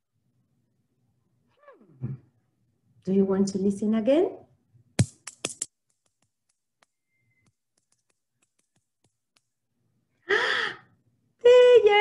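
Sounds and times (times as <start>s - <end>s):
seashells clicking together: 5.0s - 9.5s.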